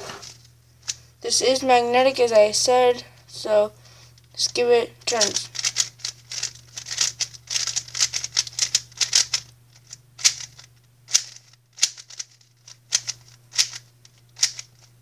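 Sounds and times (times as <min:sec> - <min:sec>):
puzzle cube layers clicking: 0:05.1 - 0:12.3, 0:12.9 - 0:13.8, 0:14.4 - 0:14.7.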